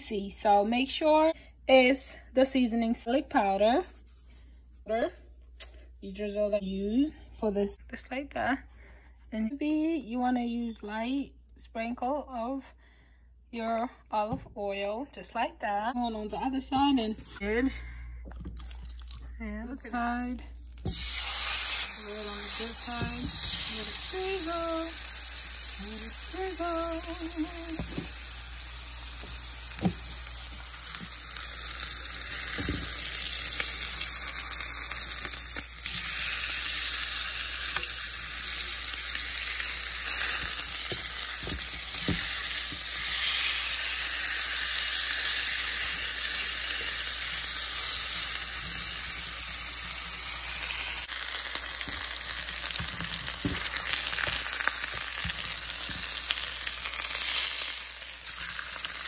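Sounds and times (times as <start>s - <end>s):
chicken sizzling in a frying pan: 20.0s - 59.0s.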